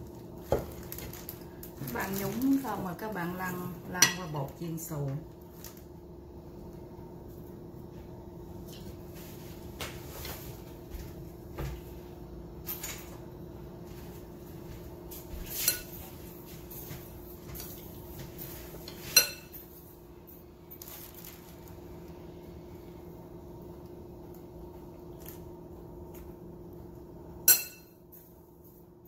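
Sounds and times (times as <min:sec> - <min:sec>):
steady low hum: 0:00.0 - 0:29.0
metal spoon clinking ceramic bowl: 0:27.5 - 0:28.0.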